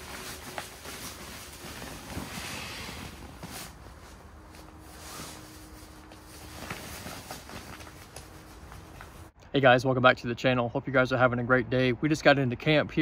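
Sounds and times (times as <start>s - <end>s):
fabric rustling and crinkling: 0.0s - 9.4s.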